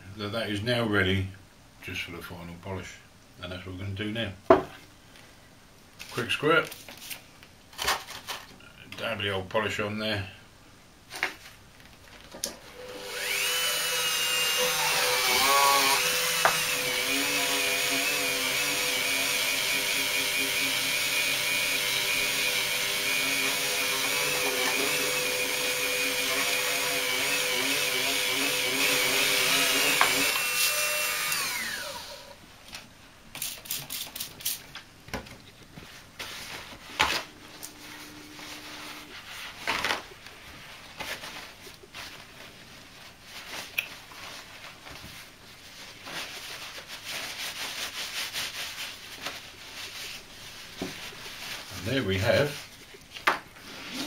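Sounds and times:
paper towel rustling: 6.0 - 8.5, 35.6 - 54.0
rotary tool motor whine: 12.7 - 32.3.

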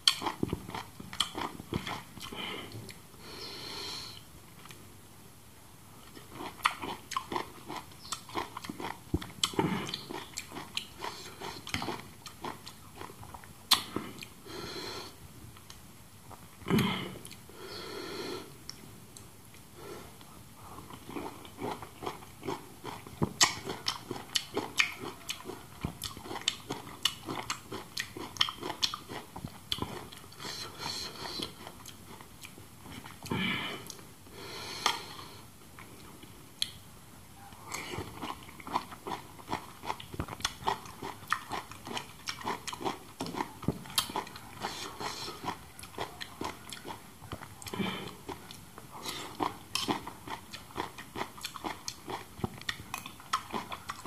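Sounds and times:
chewing and lip-smacking: 0.0 - 3.0, 6.0 - 14.4, 20.8 - 33.3, 37.7 - 54.0.

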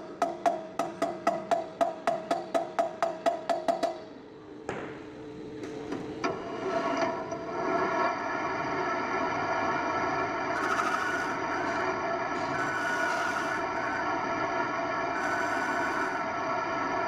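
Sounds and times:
gear whine: 6.3 - 17.0
metal lathe spinning: 6.3 - 17.0.

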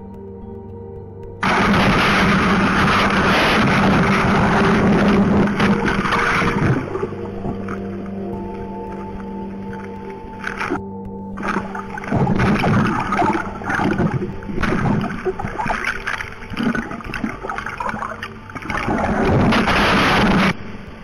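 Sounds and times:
loud steady rushing noise: 1.4 - 7.8, 18.6 - 21.0
water splashing and gurgling: 1.4 - 21.0.

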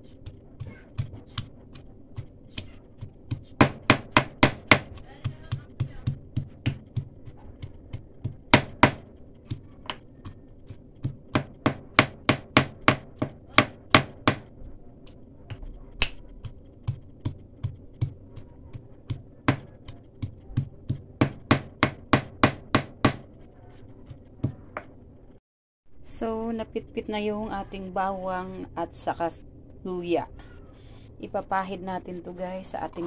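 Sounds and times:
pestle pounding in stone mortar: 0.1 - 14.6, 15.5 - 23.4.

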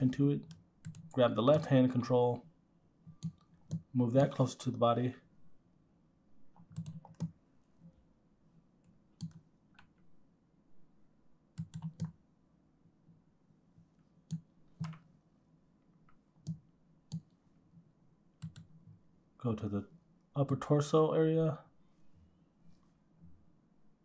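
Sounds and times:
mouse and keyboard clicks: 6.6 - 7.4, 14.3 - 15.1.

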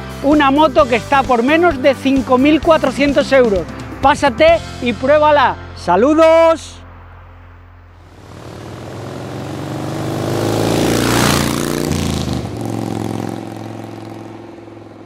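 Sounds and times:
motorcycle passing by: 8.0 - 15.0.

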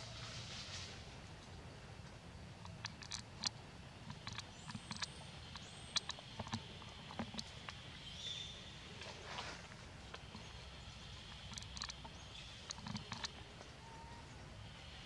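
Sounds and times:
faint high hiss: 0.0 - 1.4.

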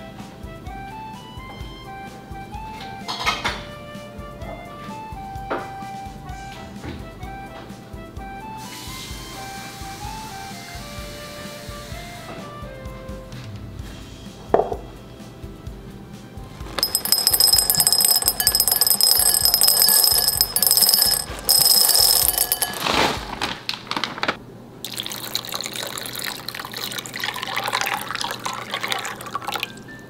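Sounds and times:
seeds clattering into glass bowl: 16.8 - 23.1
water running into bowl: 24.9 - 29.8.

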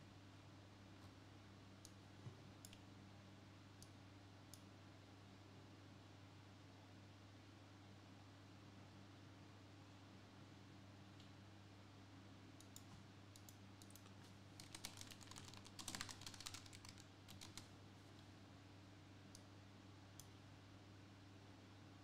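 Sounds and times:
keyboard typing clicks: 12.6 - 17.7.

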